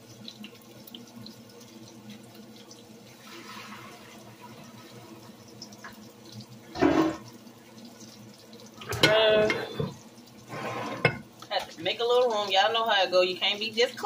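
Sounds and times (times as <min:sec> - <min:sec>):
water running from tap into sink: 0:00.0 - 0:14.0.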